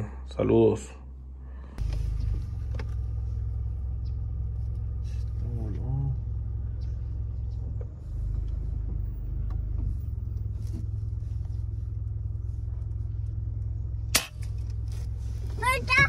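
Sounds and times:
car engine rumble: 0.0 - 16.0
sharp crack: 14.1 - 14.8.

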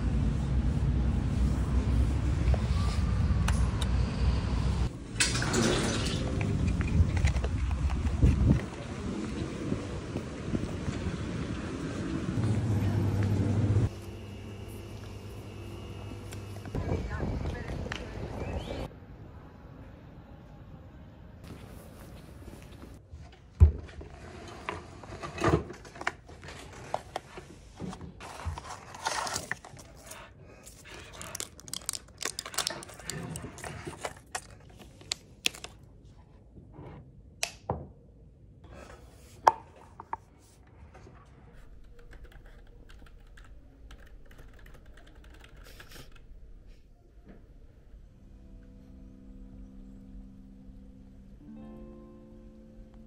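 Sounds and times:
paper rustling: 25.7 - 35.8.

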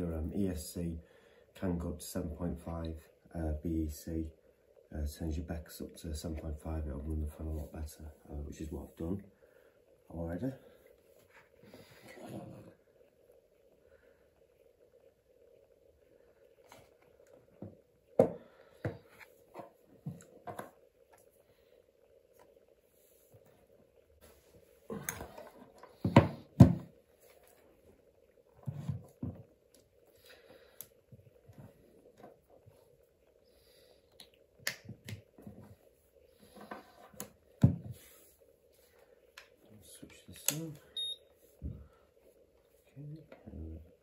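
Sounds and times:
faint steady hum: 0.0 - 44.0
small clicks and taps of parts: 40.3 - 40.7.

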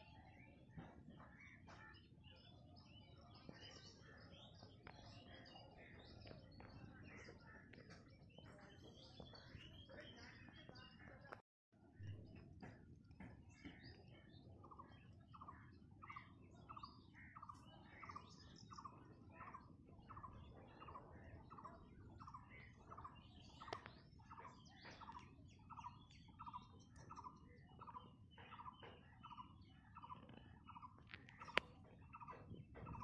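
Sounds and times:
faint repeated bird call: 12.0 - 33.0.

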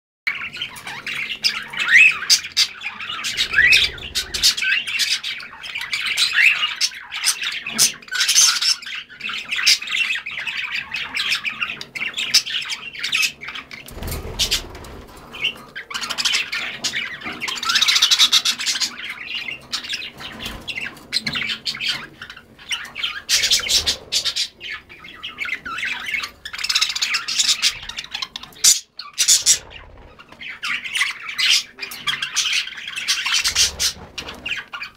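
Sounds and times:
parrots chattering and squawking: 0.3 - 34.9
wings fluttering: 3.1 - 5.1, 13.7 - 16.5, 22.7 - 28.4, 29.2 - 30.8, 33.2 - 34.9.

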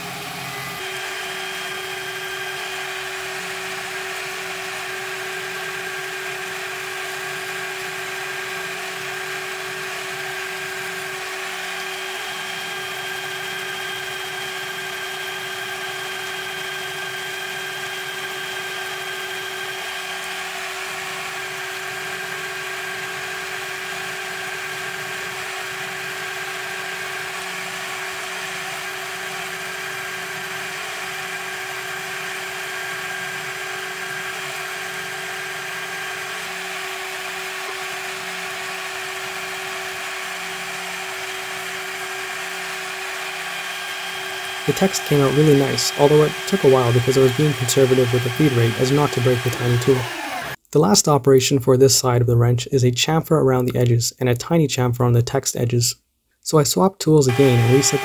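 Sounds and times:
spindle whine: 43.5 - 50.6, 57.3 - 58.0
higher whine tone: 57.3 - 58.0.

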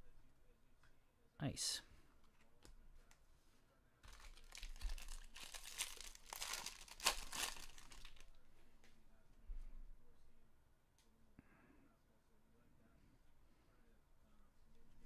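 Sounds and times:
wrapper tearing and crinkling: 4.0 - 8.3.

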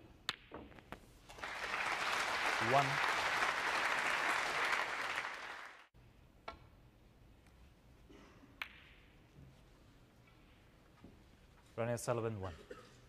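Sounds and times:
audience applauding: 1.3 - 5.9.

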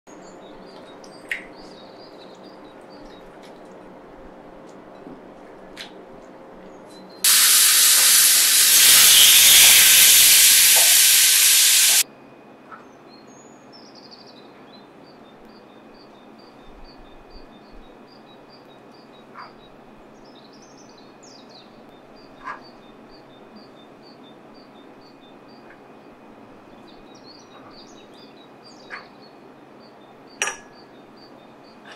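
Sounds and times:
chicken sizzling on grill pan: 7.3 - 12.0.

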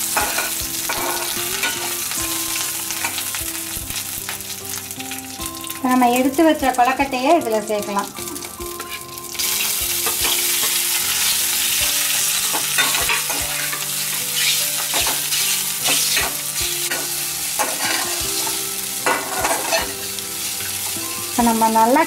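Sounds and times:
food sizzling in oil: 0.0 - 22.0
ladle clinking and scraping pan: 0.1 - 3.3, 8.2 - 20.1.

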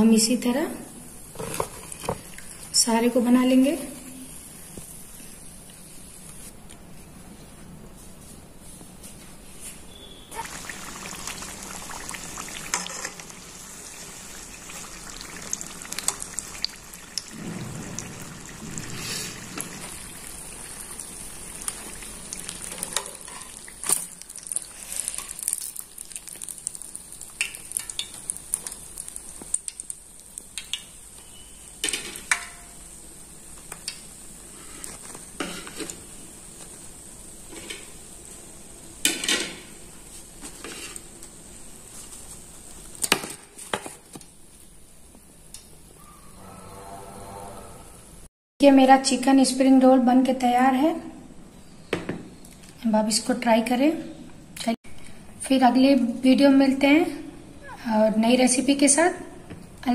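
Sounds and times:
food deep-frying in oil: 9.9 - 43.4.

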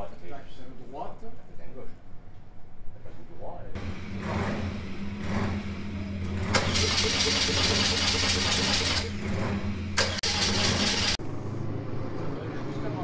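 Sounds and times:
engine electric starter cranking: 3.8 - 11.2.

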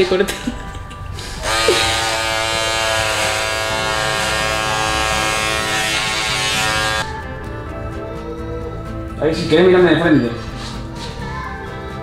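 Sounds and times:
electric hair clippers buzzing: 1.2 - 7.1.

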